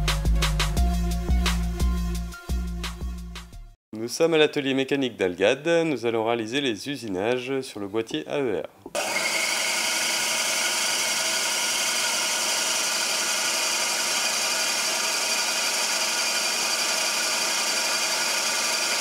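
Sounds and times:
milling machine cutting metal: 9.0s - 19.0s.

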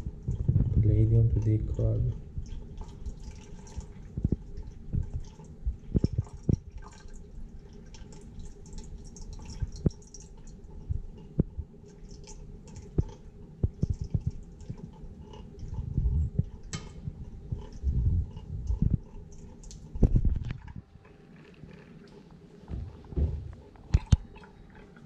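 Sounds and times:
low rumble: 0.0s - 2.4s, 15.8s - 19.2s
faint steady hum: 0.0s - 25.0s
liquid trickling and dripping: 0.0s - 25.0s.

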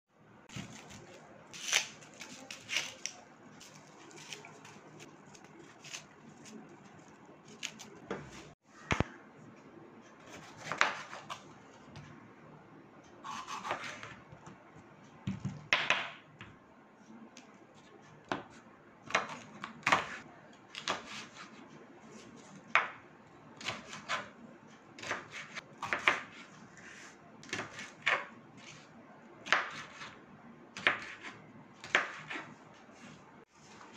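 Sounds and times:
knife chopping on wooden board: 25.0s - 26.4s, 30.8s - 32.4s.

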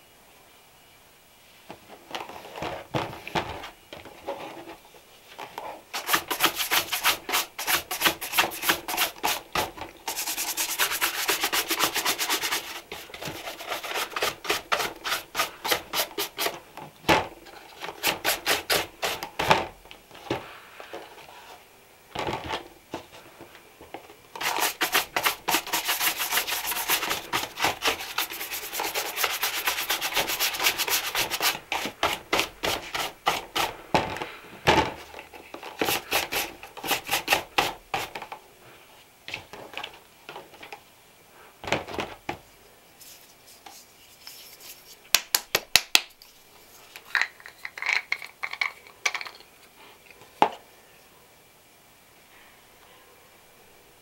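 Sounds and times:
rubbing strokes on leather shoe: 5.9s - 16.6s, 24.4s - 33.8s.

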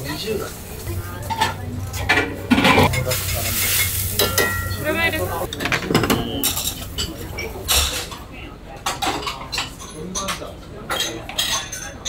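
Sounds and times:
food sizzling in a wok: 0.0s - 2.0s, 2.9s - 5.5s
metal utensils clinking: 0.0s - 8.3s.

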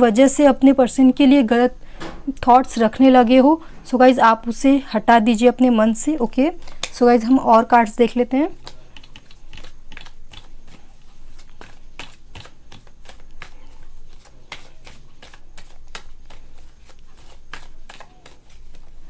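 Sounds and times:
cards being shuffled: 8.6s - 19.0s.

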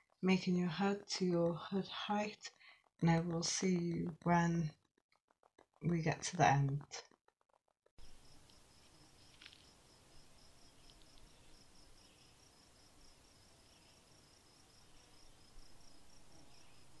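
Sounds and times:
crickets chirping: 8.0s - 17.0s.

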